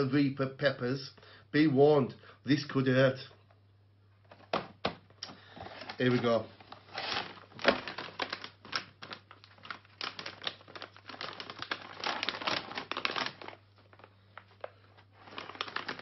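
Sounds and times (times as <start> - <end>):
crinkly snack bag rustling: 5.6 - 16.0.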